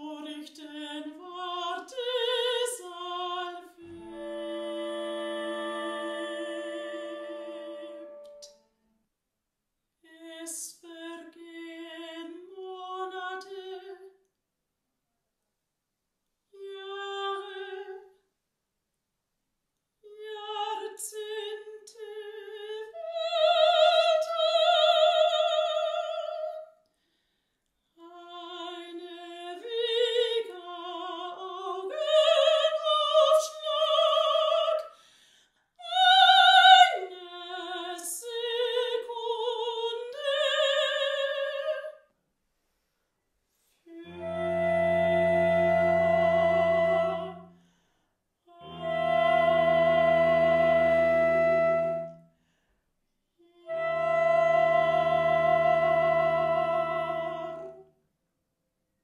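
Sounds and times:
soprano singing operatically: 0.0s - 8.5s, 10.2s - 14.0s, 16.6s - 18.1s, 20.1s - 26.6s, 28.0s - 34.9s, 35.8s - 42.0s, 53.6s - 57.8s.

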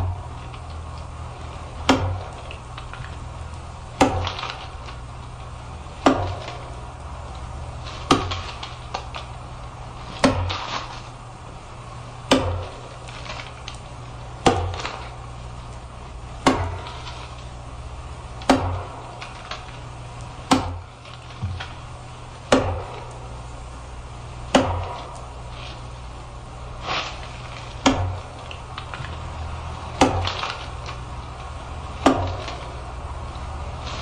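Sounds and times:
steady low hum: 0.0s - 34.0s
axe chopping wood: 1.8s - 3.2s, 3.9s - 5.0s, 6.0s - 6.8s, 7.8s - 9.3s, 10.0s - 11.1s, 12.2s - 13.7s, 14.4s - 15.2s, 16.4s - 17.4s, 18.4s - 19.8s, 20.4s - 21.8s, 22.5s - 23.3s, 24.5s - 25.9s, 26.8s - 29.2s, 29.9s - 31.0s, 31.9s - 32.9s.

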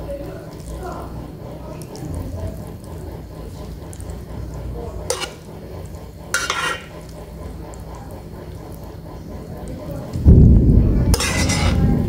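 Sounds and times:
metal spoon stirring noodles: 0.0s - 10.1s, 11.1s - 12.0s
spoon scraping a pot: 5.1s - 5.5s, 6.3s - 6.9s, 11.1s - 11.8s.

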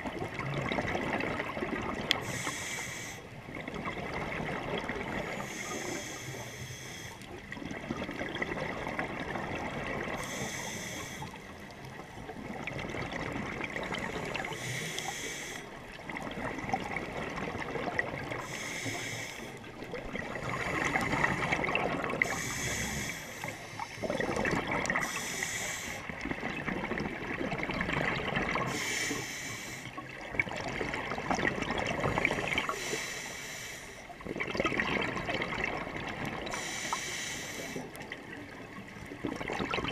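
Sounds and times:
bubbling gurgle of exhale: 0.0s - 2.8s, 3.4s - 6.4s, 7.2s - 29.2s, 29.8s - 33.0s, 34.1s - 39.9s
diver breathing through regulator: 2.2s - 3.3s, 5.1s - 7.3s, 10.1s - 11.6s, 13.9s - 15.8s, 18.3s - 26.2s, 28.6s - 30.0s, 32.1s - 34.1s, 36.4s - 38.0s.

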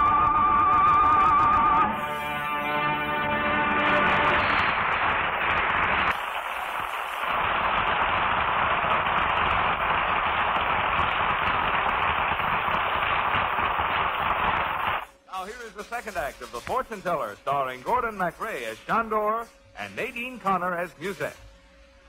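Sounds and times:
audience applauding: 2.2s - 15.1s.

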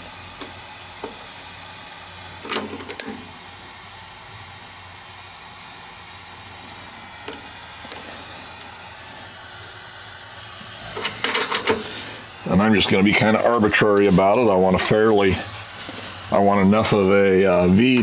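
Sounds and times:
low shop hum: 0.0s - 18.0s
light metal clinks and taps: 2.5s - 3.3s.

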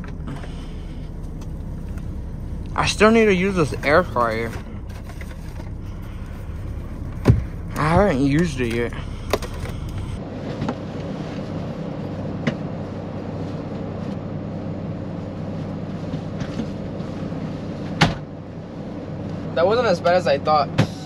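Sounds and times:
diesel truck engine idling: 0.0s - 10.5s.

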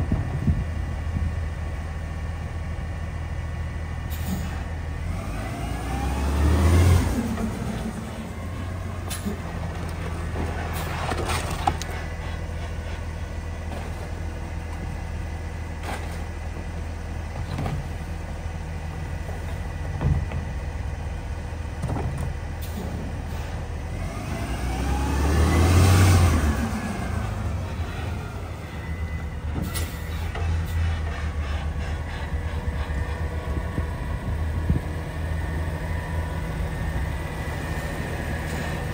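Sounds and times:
engine revving: 5.0s - 13.0s, 23.9s - 38.9s
garbage truck engine idling: 7.0s - 24.1s, 26.5s - 38.9s
knocks and bangs of carts: 9.1s - 12.1s, 19.3s - 20.7s.

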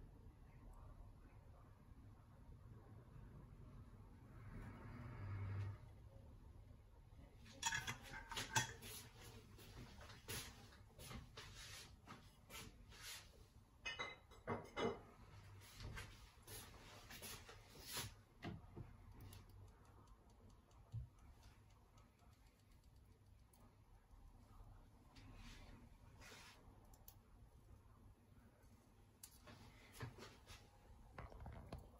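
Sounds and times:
pot ticking and crackling on hob: 7.4s - 8.8s, 18.4s - 24.8s.

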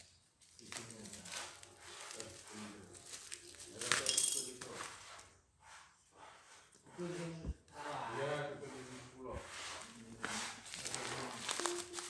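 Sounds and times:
plastic bag crinkling and tearing: 0.0s - 4.7s, 10.2s - 12.0s.

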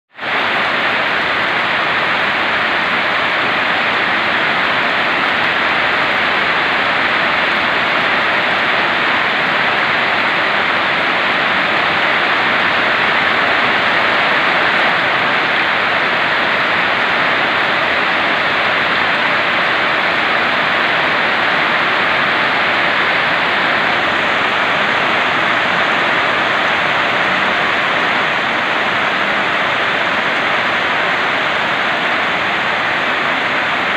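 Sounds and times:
heavy rain pouring: 0.1s - 33.9s.

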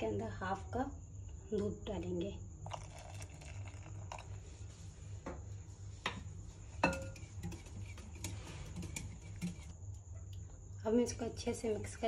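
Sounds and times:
low steady hum: 0.0s - 12.0s
whisk clinking against glass bowl: 6.8s - 9.7s.

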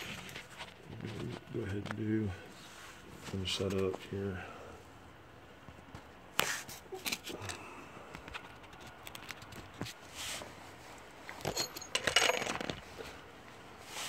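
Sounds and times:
hand tools clinking and scraping: 0.0s - 1.8s, 11.3s - 13.2s.

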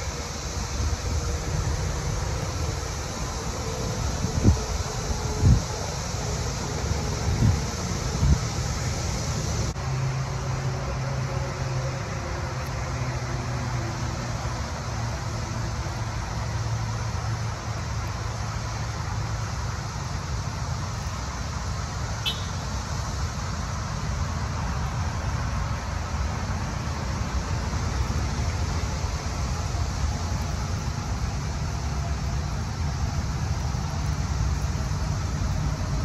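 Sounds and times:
highway traffic drone: 0.0s - 36.0s.

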